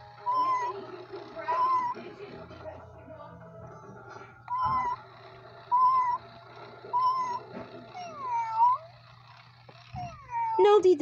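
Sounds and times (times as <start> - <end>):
electronic cat meows: 4.5 - 5.0, 5.7 - 6.2.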